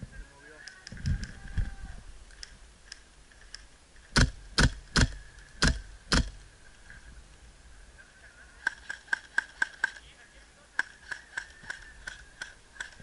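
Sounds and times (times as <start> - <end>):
silenced airsoft gun shots: 4.1 - 6.4.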